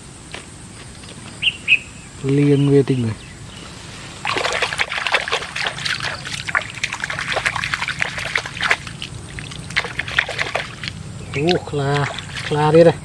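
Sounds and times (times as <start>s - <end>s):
hand splashing pond water: 4.2s - 13.0s.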